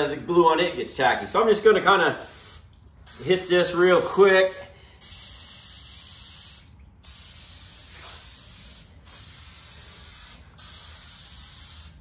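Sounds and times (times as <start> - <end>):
aerosol spray can hissing: 2.1 - 12.0.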